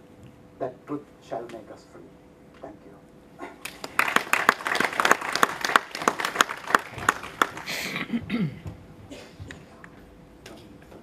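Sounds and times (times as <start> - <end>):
audience applauding: 3.6 - 8.1.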